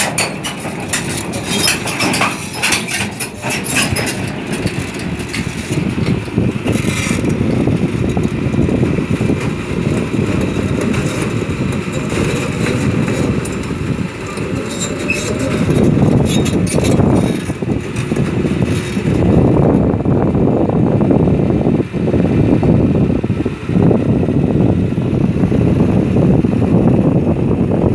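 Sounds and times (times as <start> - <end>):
steel tracks on trailer: 0.0 - 19.4
excavator diesel engine rumbling: 0.0 - 27.9.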